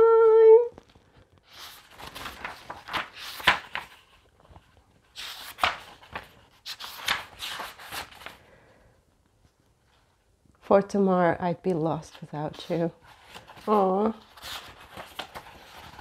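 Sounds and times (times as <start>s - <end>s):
book pages turning: 0.7s - 8.4s, 12.1s - 16.0s.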